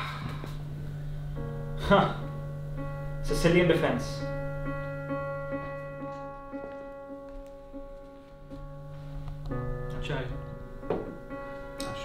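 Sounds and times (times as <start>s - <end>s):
slow piano notes: 0.0s - 12.0s
steady low tone: 0.0s - 12.0s.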